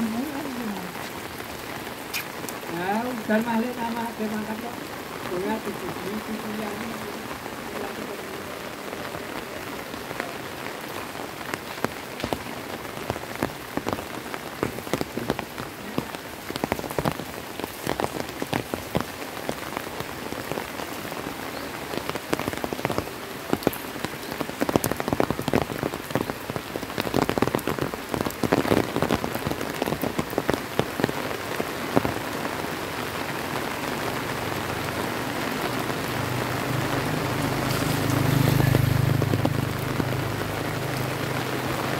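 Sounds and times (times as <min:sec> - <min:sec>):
raindrops clicking nearby: 0:00.0 - 0:32.4
heavy rain falling: 0:00.0 - 0:41.9.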